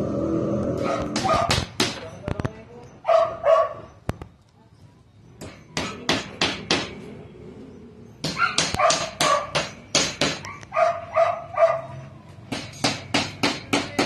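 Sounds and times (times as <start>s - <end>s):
dog barking: 0.8s - 1.6s, 3.0s - 3.9s, 8.3s - 9.6s, 10.4s - 12.0s.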